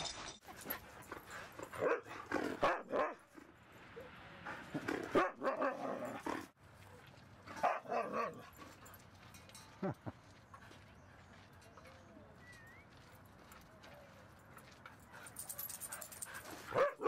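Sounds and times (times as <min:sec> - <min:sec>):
dogs barking and growling: 0:00.4 - 0:06.6, 0:07.5 - 0:09.0, 0:15.4 - 0:17.0.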